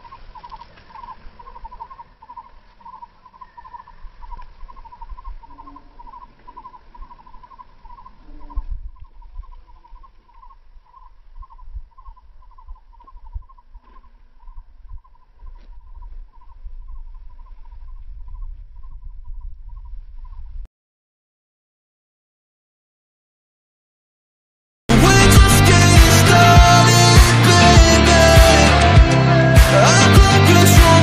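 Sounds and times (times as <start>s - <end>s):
wind rumbling on microphone: 0.0s - 20.7s.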